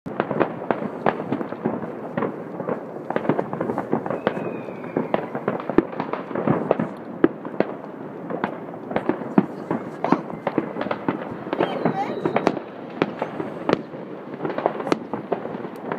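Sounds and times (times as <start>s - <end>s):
fireworks crackling bangs and pops: 0.1s - 15.9s
faint firework whistle: 2.6s - 6.9s, 9.4s - 13.9s.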